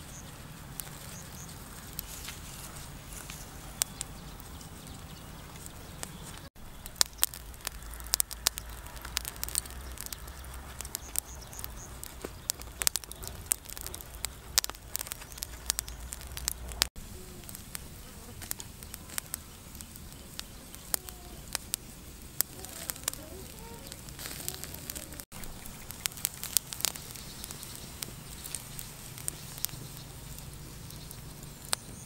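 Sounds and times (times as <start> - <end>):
charcoal fire crackling: 0.0 - 32.0.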